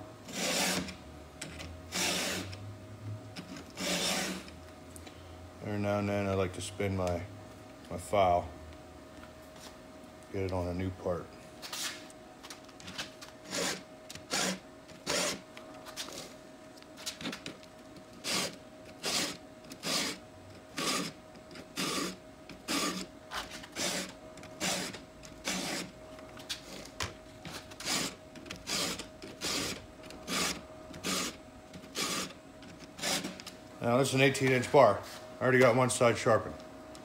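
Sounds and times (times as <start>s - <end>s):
file rasping on saw chain: 3.8s - 4.4s, 18.2s - 20.2s, 21.8s - 23.0s.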